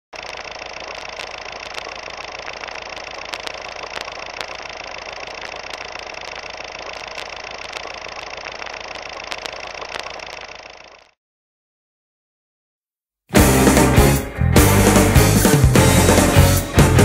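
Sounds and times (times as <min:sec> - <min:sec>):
clicks and crackle: 0:00.2 - 0:10.8
film projector whirring: 0:00.2 - 0:11.2.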